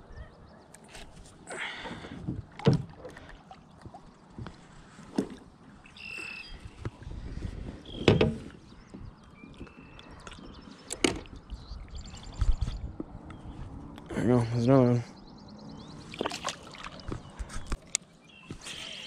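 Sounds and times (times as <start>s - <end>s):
bird chirps: 5.8s - 6.7s, 7.8s - 13.6s, 15.0s - 19.0s.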